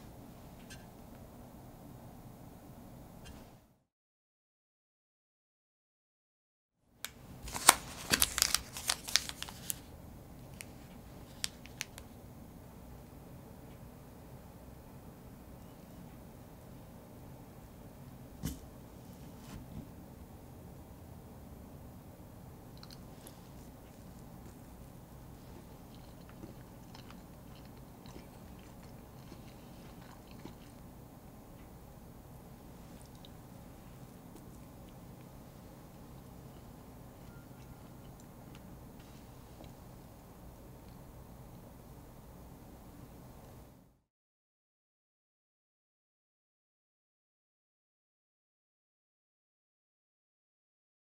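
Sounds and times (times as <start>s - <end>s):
steady low hum: 0.0s - 3.8s, 7.1s - 44.0s
plastic wrapper crinkling: 7.1s - 9.9s, 10.5s - 12.0s
mouth clicks while chewing: 22.8s - 23.1s.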